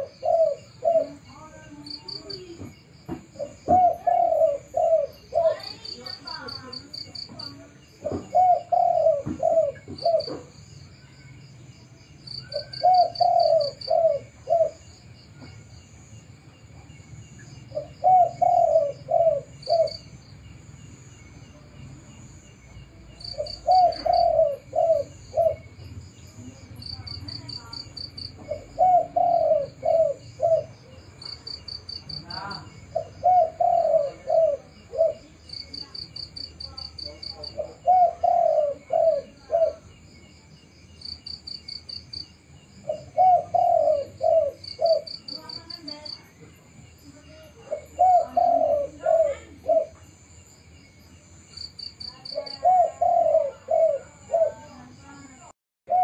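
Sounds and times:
dove cooing: 0:00.0 - 0:10.6, 0:12.3 - 0:15.5, 0:17.7 - 0:20.2, 0:23.2 - 0:40.0, 0:42.8 - 0:46.5, 0:47.1 - 0:50.2, 0:51.9 - 0:55.0
insects trilling: 0:00.0 - 0:56.0.

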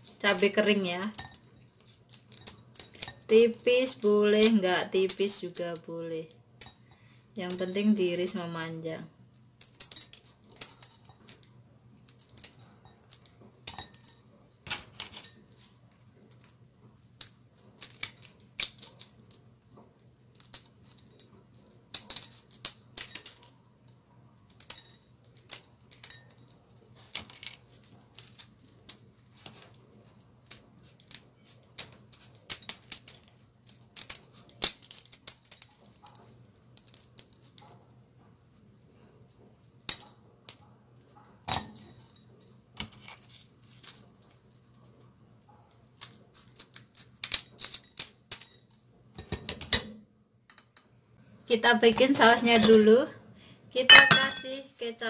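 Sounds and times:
scissors snipping chillies: 0:00.0 - 0:06.7, 0:16.3 - 0:19.3.

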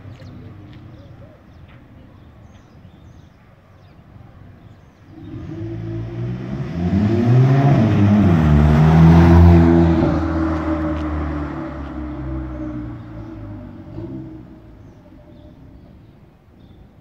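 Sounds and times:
car engine accelerating past: 0:05.1 - 0:15.5.

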